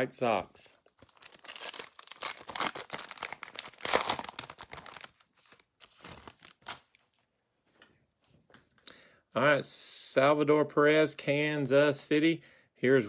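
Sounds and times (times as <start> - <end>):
foil wrapper tearing and crinkling: 1.0 - 6.9.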